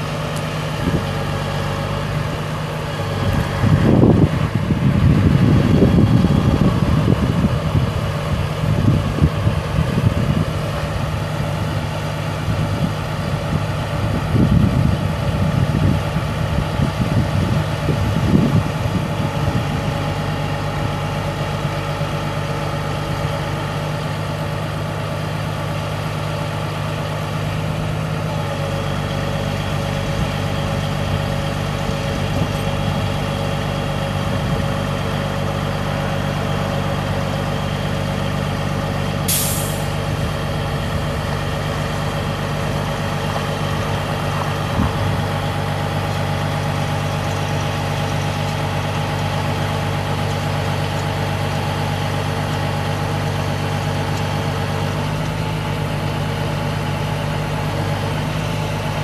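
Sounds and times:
truck diesel engine running: 0:00.0 - 0:59.0
air release hiss: 0:39.3 - 0:39.9.

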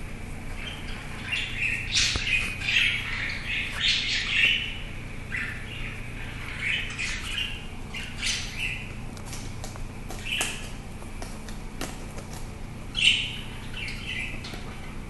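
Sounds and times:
cockatiel chirping and squawking: 0:00.6 - 0:09.0.

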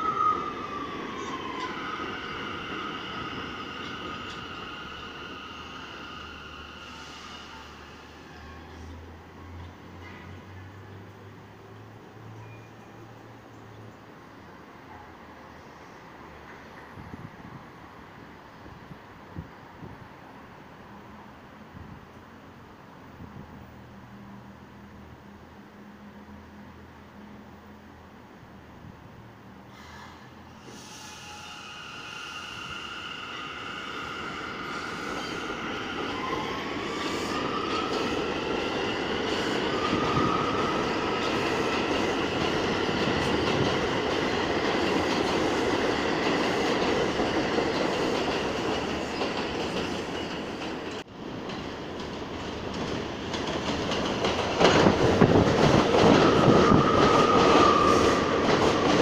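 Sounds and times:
train wheels squealing: 0:00.0 - 0:10.7, 0:12.3 - 0:13.2, 0:29.7 - 0:43.4, 0:55.9 - 0:59.0
subway train pulling away: 0:00.0 - 0:59.0
train passing close: 0:00.0 - 0:59.0.

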